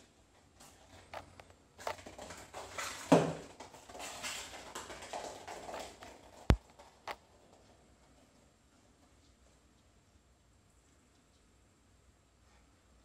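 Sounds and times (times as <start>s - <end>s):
foil ball skittering on floor: 0.6s - 8.3s
kitten paws scrabbling: 0.6s - 8.4s.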